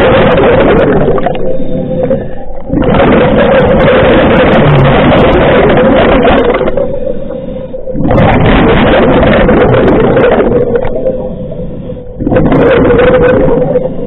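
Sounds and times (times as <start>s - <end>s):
bubbling exhalations: 0.0s - 14.0s
steady hum: 0.0s - 14.0s
diver breathing through regulator: 1.5s - 3.1s.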